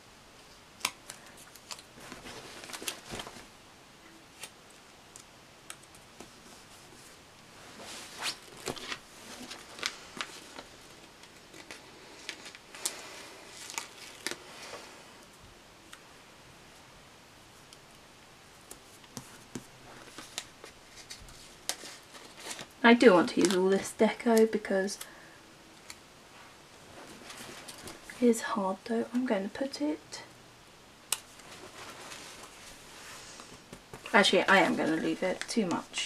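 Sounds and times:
paper rustling and ticks: 0:18.6 - 0:25.0.

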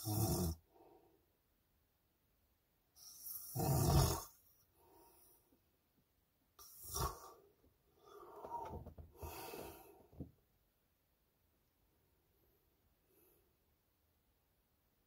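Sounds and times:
man snoring: 0:00.0 - 0:00.7, 0:03.0 - 0:04.4, 0:06.6 - 0:07.4.

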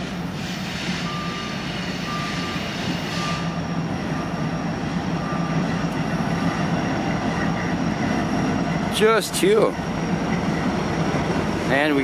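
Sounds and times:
diesel locomotive engine drone: 0:00.0 - 0:12.0
short high beep: 0:01.0 - 0:03.6.

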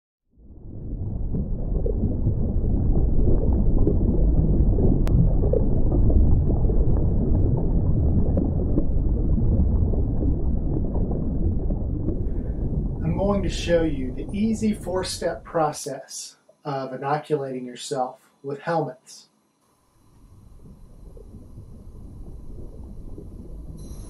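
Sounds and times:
loud low rumble: 0:00.4 - 0:15.5.

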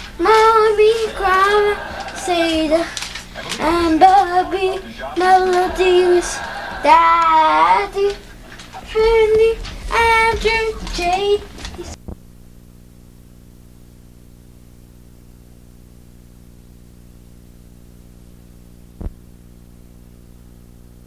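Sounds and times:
electrical hum with hiss: 0:00.0 - 0:21.0
child singing: 0:00.2 - 0:08.2, 0:08.8 - 0:12.0.

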